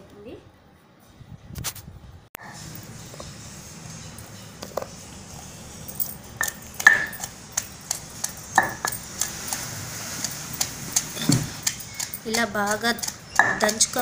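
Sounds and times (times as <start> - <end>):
pestle pounding in stone mortar: 10.6 - 14.0.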